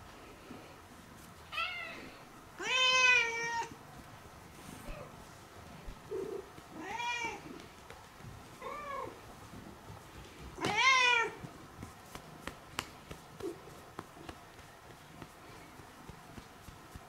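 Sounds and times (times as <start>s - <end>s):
cat meowing: 1.5s - 3.7s, 10.6s - 11.4s.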